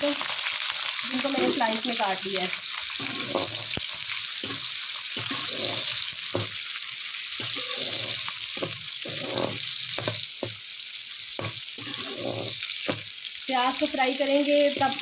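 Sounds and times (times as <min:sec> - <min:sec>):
onions sizzling in a pan: 0:00.0 - 0:15.0
metal spoon scraping a pan: 0:01.2 - 0:02.0, 0:02.8 - 0:10.6, 0:11.3 - 0:13.1, 0:14.6 - 0:15.0.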